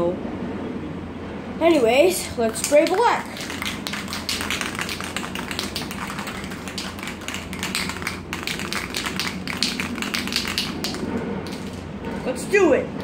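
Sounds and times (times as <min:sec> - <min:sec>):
spray can being shaken: 0:02.3 - 0:11.9.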